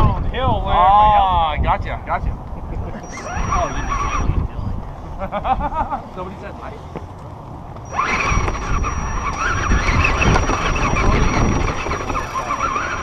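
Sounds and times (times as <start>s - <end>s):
chassis rattle and rumble: 1.6s - 13.0s
electric motor whining: 2.8s - 4.9s, 7.8s - 13.0s.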